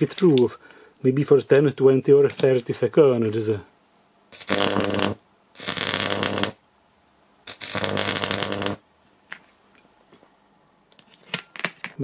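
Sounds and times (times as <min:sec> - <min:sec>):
wire crackling as it burns: 0:04.3 - 0:06.6, 0:07.5 - 0:08.8
transformer buzzing hum: 0:04.3 - 0:06.7, 0:07.5 - 0:08.9.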